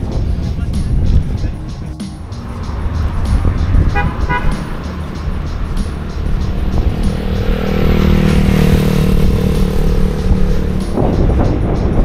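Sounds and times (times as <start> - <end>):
wind rumble on microphone: 0.0 - 12.0
motor scooter engine running: 3.4 - 12.0
double horn beep: 3.9 - 4.8.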